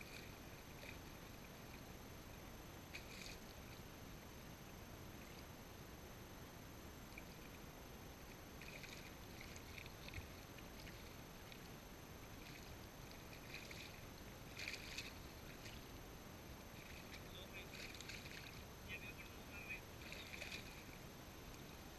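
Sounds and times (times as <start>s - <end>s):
small splashes of river water: 0.0s - 1.9s, 2.8s - 3.9s, 8.3s - 21.8s.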